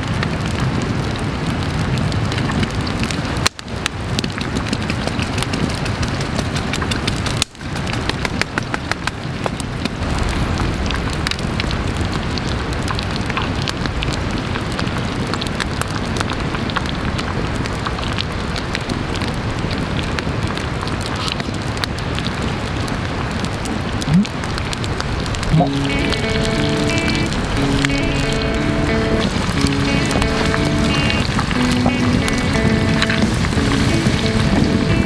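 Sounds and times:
wood fire crackling and popping: 0:00.0 - 0:35.0
food sizzling in a skillet: 0:25.5 - 0:35.0.

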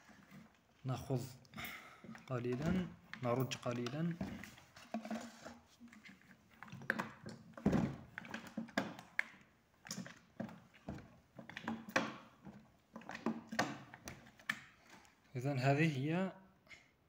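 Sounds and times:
plastic bottle knocking and crackling: 0:02.0 - 0:15.0.

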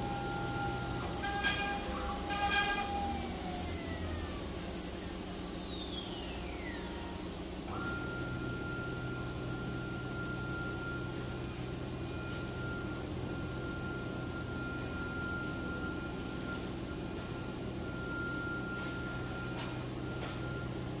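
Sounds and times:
router spindle winding down: 0:00.0 - 0:06.9
steady high whine: 0:00.0 - 0:21.0.

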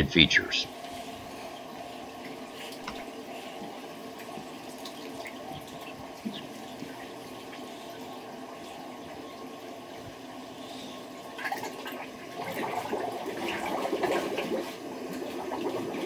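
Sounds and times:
water sloshing and trickling: 0:00.7 - 0:16.0.

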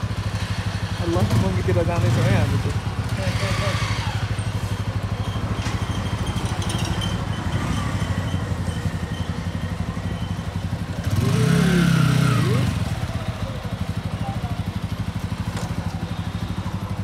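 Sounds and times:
motorcycle engine idling: 0:00.0 - 0:17.0
motorcycle engine revving: 0:00.0 - 0:17.0.

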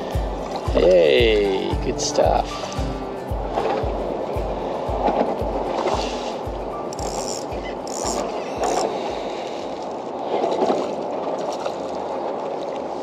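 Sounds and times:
soft low thumps: 0:00.0 - 0:07.2
water rushing around kayak: 0:00.0 - 0:13.0
wind: 0:00.0 - 0:13.0
fishing reel rattling clicks: 0:06.9 - 0:08.9.

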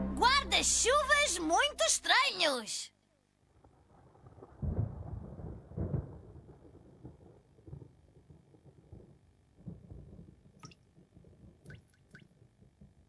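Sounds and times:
low rumble of thunder: 0:03.6 - 0:13.0
light plinking raindrops: 0:10.6 - 0:10.9, 0:11.6 - 0:12.4.

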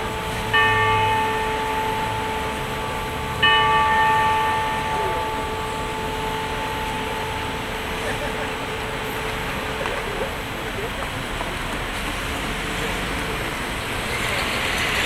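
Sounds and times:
clock tower bell striking: 0:00.0 - 0:11.3
street traffic hum: 0:00.0 - 0:15.0.

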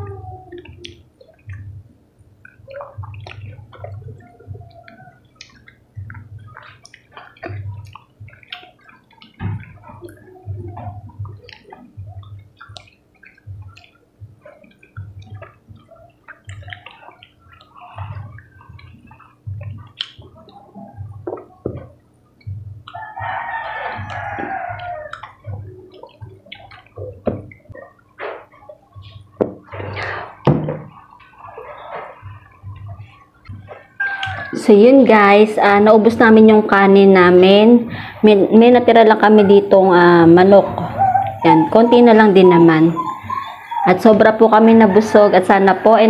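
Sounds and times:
people eating with wet slurping: 0:00.0 - 0:34.6
rooster crowing: 0:23.0 - 0:25.2, 0:34.0 - 0:34.7.

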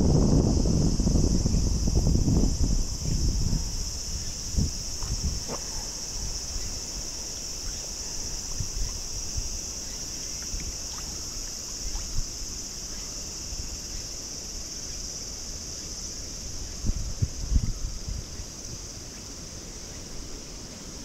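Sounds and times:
high-pitched insect drone: 0:00.0 - 0:21.0.

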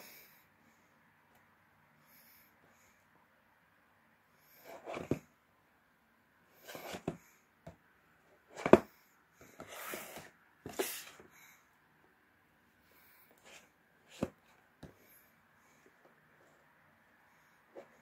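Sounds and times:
cardboard box scraping and rustling: 0:04.6 - 0:05.2, 0:06.6 - 0:07.2, 0:09.6 - 0:11.2.

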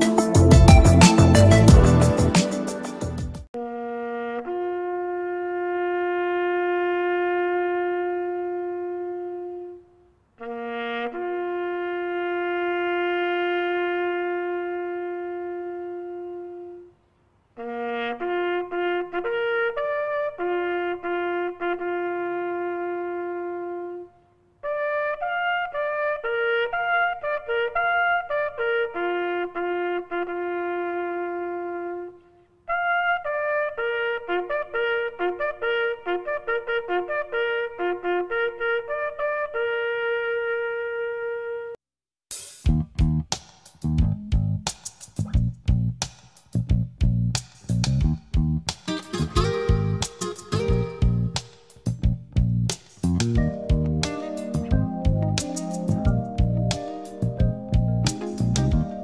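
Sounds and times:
solo trumpet bugle call: 0:03.6 - 0:17.0, 0:17.6 - 0:41.8, 0:48.9 - 0:51.9.

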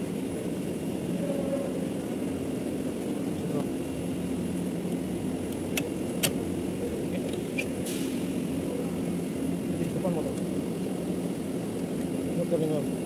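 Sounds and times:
brief hiss: 0:07.8 - 0:08.4.

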